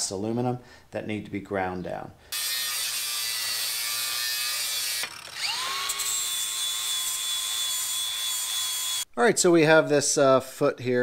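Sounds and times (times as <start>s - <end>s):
angle grinder grinding metal: 2.3s - 9.1s.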